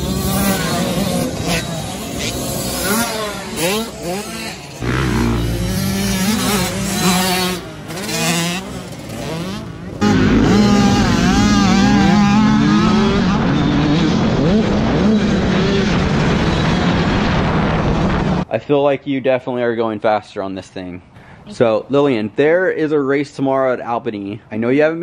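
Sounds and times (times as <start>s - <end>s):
close motorcycle engine: 0.0s - 16.8s
dirt bike engines revving: 0.0s - 17.3s.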